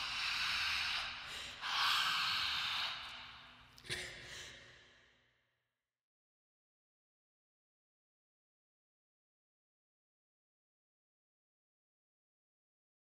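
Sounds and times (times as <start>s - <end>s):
person breathing heavily and gasping: 0.0s - 5.2s.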